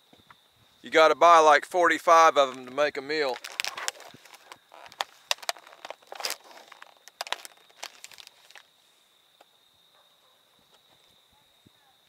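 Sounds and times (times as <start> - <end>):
plastic packaging crinkling: 2.5 - 8.7.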